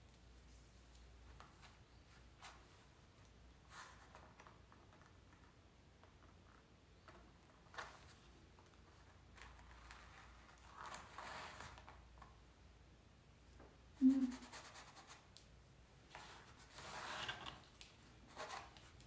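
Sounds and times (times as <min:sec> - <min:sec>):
chalk rubbing stroke: 0:14.1 - 0:15.2.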